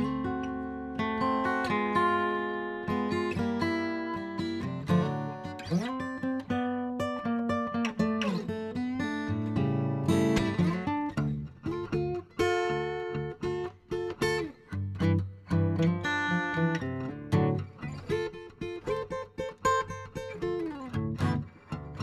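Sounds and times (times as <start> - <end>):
guitar strummed and picked: 0.0 - 22.0.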